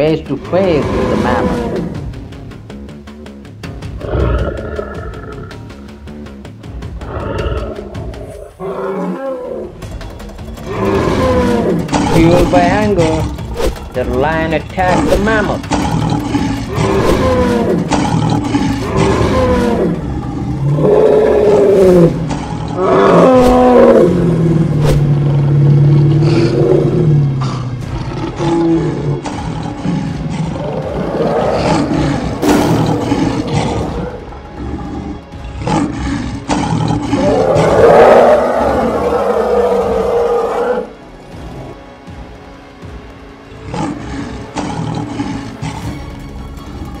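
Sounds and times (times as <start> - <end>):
background music: 0.0 - 47.0
cartoon lion roaring: 0.5 - 2.1, 4.0 - 5.5, 10.6 - 13.4, 14.8 - 40.9
sharp hits: 32.4 - 33.6.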